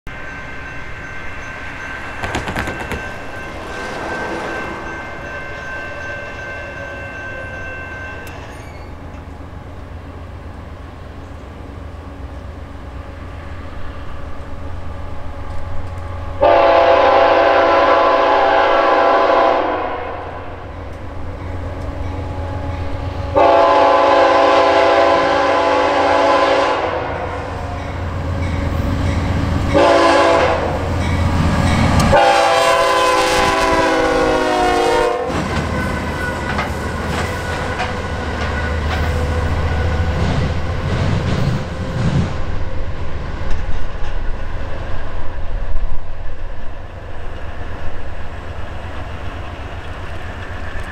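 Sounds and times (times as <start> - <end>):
wheels clacking over rail joints: 2.0 - 6.5, 35.3 - 42.4
locomotive horn blasts: 16.3 - 20.6, 22.4 - 27.7, 29.7 - 30.9, 31.9 - 40.2.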